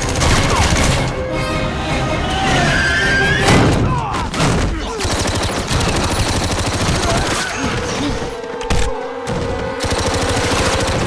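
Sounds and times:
automatic gunfire: 0:00.0 - 0:00.9, 0:04.9 - 0:07.4.

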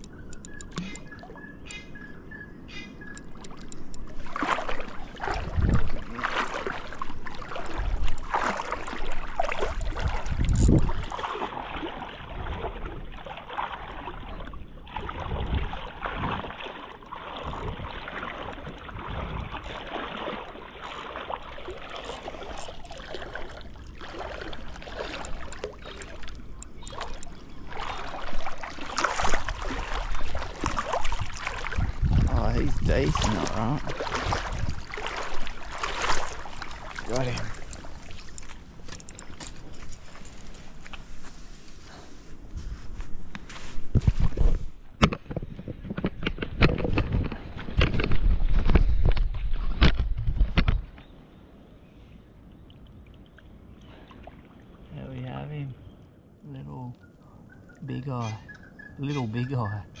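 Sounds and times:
water splashing while wading: 0:02.6 - 0:51.0.

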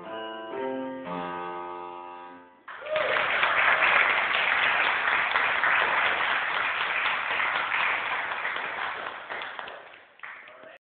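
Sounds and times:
audience applauding: 0:02.7 - 0:10.8.

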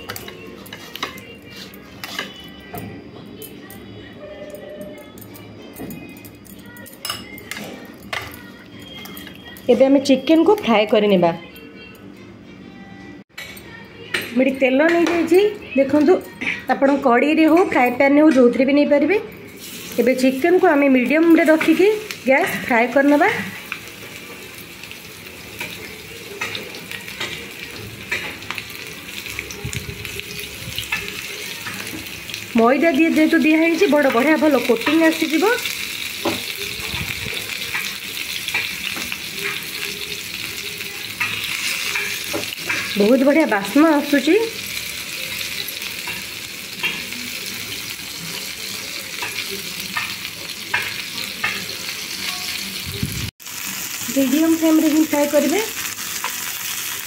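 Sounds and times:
chicken sizzling in oil: 0:19.5 - 0:57.0.

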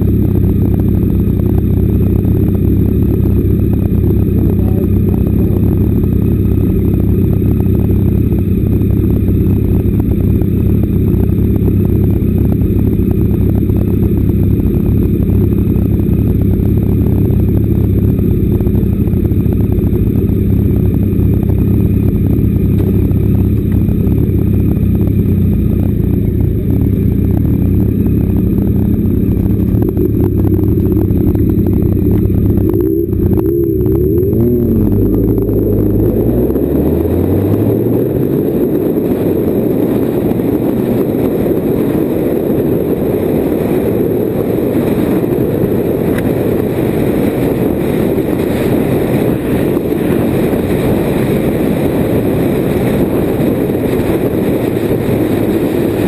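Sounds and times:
motorcycle engine idling: 0:00.0 - 0:36.2.

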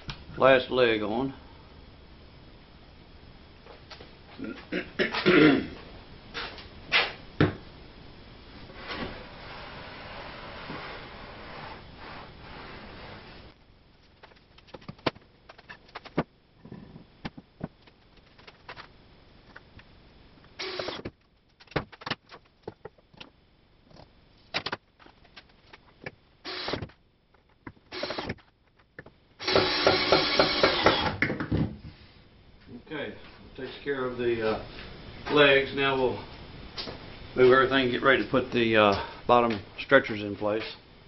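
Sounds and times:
cordless drill motor: 0:20.6 - 0:21.0, 0:26.4 - 0:26.8, 0:27.9 - 0:28.3, 0:29.4 - 0:31.1.

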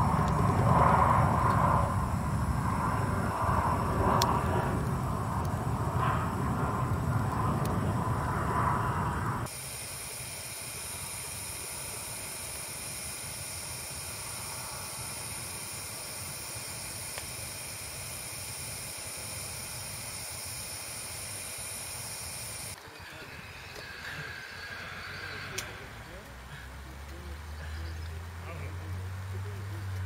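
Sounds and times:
low rushing sound: 0:00.0 - 0:09.5
lantern burner hissing: 0:00.0 - 0:29.2.

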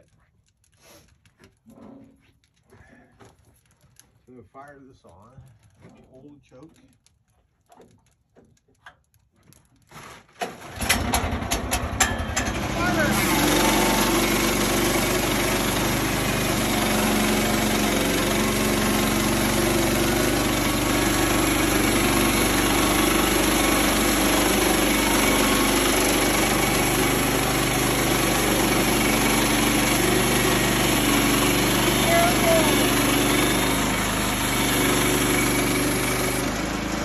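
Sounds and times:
bandsaw mill cutting log: 0:09.8 - 0:37.0.

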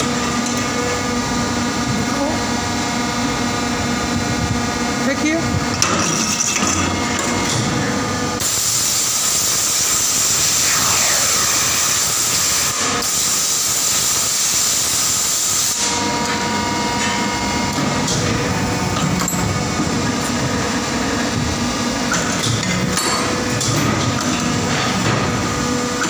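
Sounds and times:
hydraulic unit humming: 0:06.9 - 0:14.9, 0:15.8 - 0:23.7.

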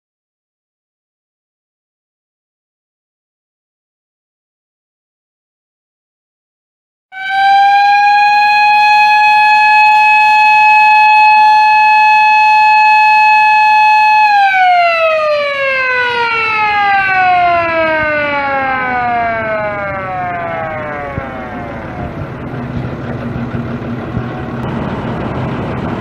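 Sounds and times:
whistle siren screaming: 0:07.1 - 0:22.5.

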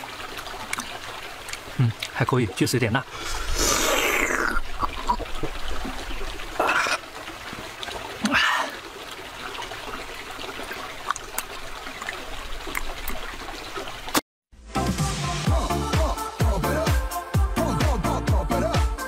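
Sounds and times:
water trickling: 0:00.0 - 0:14.2
person slurping and chewing: 0:03.2 - 0:05.1.

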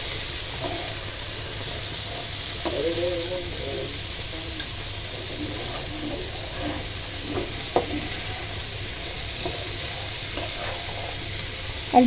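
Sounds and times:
vegetables sizzling in a wok: 0:00.0 - 0:12.0.

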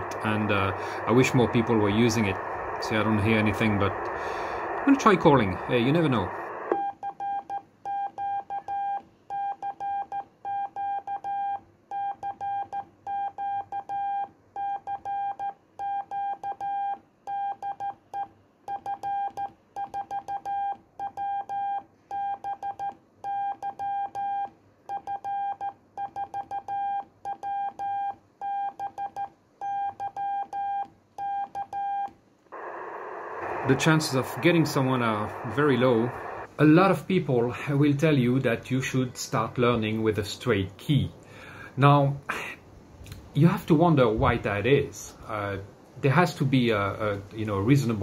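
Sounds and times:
morse code beeps: 0:06.7 - 0:32.1.

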